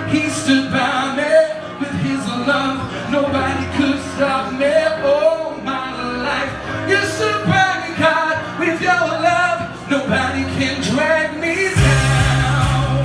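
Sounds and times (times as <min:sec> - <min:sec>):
man singing: 0:00.0 - 0:13.0
pop backing music: 0:00.0 - 0:13.0.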